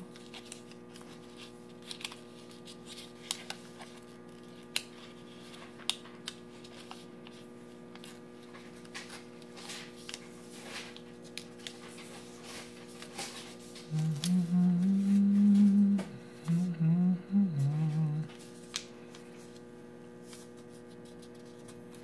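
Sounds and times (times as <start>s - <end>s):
paper rustling and crinkling: 0.0s - 14.4s, 18.3s - 22.0s
paper crackles: 0.0s - 15.8s, 18.3s - 22.0s
low hum: 13.8s - 18.4s.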